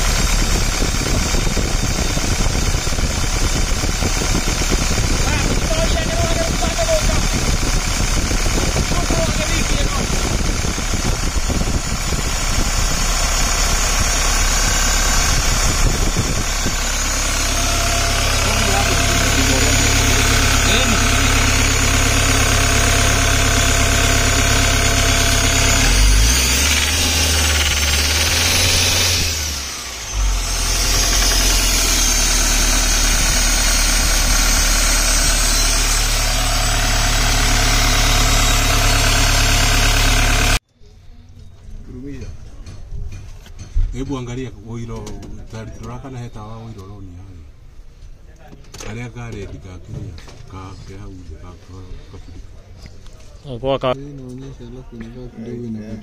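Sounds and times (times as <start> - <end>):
engine idling: 0.0 - 40.6.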